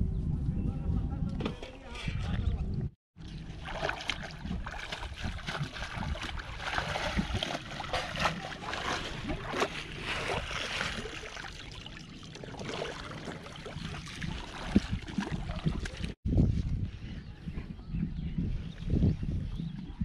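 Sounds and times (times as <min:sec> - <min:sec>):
shallow water splashing: 0:03.2 - 0:16.2.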